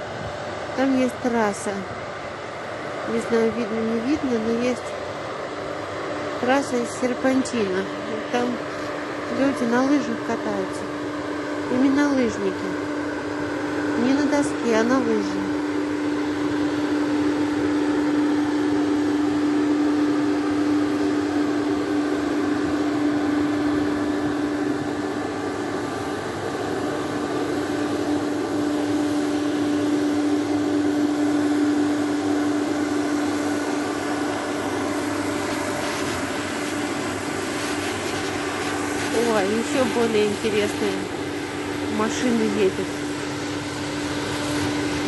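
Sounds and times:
snow cannon humming: 0.0s - 45.0s
rushing hiss of air and spray: 33.2s - 41.7s.

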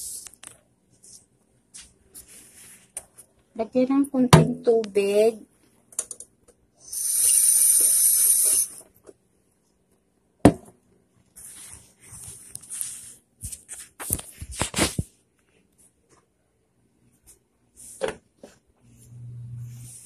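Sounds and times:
faucet water running into jar: 6.9s - 8.7s.

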